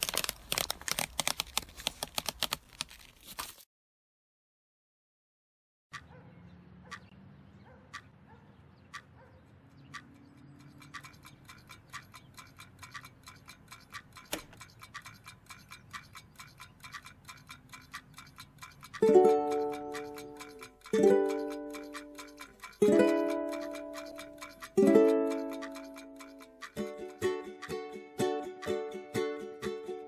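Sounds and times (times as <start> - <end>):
clock-like ticking: 6.9 - 7.2, 7.9 - 8.2, 8.9 - 30.0
loud click: 14.2 - 14.6
plucked-string chord: 19.0 - 22.2, 22.8 - 30.0.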